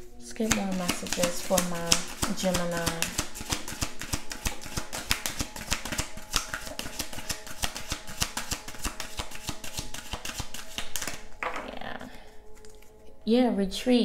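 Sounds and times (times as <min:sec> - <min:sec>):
cards shuffled by hand: 0:00.5 - 0:11.3.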